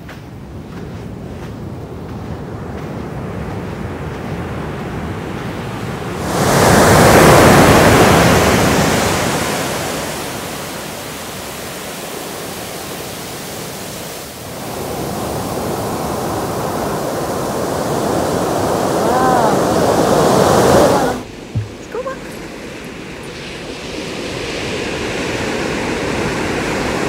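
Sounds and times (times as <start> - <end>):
ocean surf breaking on beach: 0.0 - 27.0.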